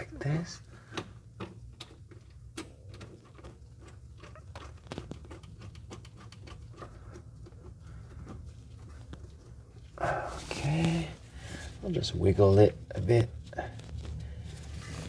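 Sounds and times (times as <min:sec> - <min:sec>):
low steady hum: 0:00.0 - 0:15.0
small metal clicks and ticks: 0:01.4 - 0:08.4.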